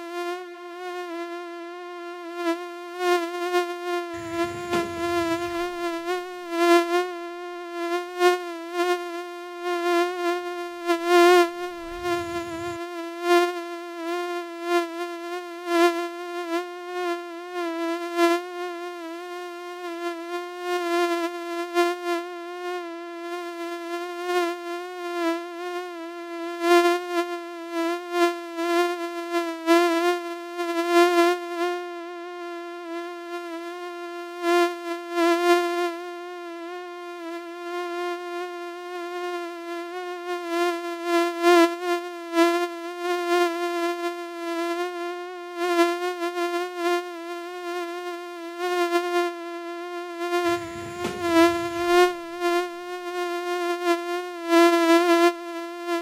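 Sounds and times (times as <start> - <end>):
mosquito wingbeat whine: 4.2 - 6.9, 11.4 - 13.0, 50.4 - 53.2.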